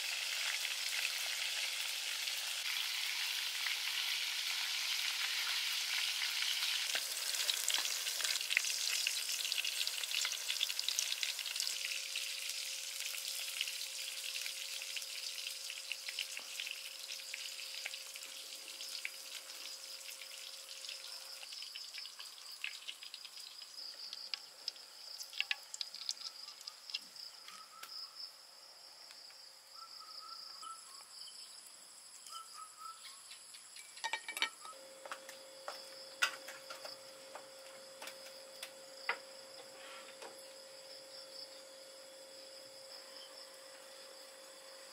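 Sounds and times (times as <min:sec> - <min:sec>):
food sizzling in oil: 0:00.0 - 0:27.4.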